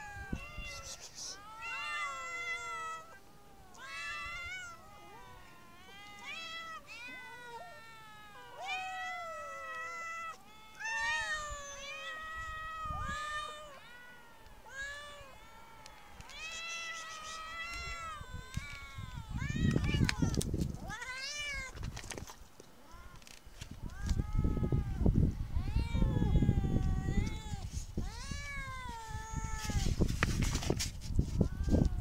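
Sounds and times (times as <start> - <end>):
young cats meowing: 0.0 - 22.2, 22.8 - 30.0, 31.4 - 32.0.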